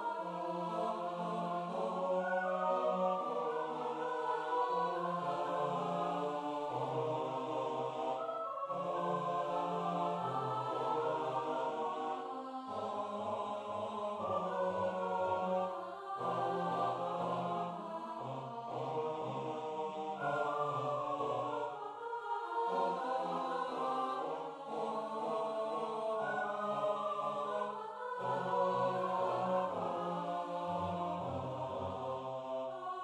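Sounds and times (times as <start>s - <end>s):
a cappella choir singing chords: 0.0s - 33.0s.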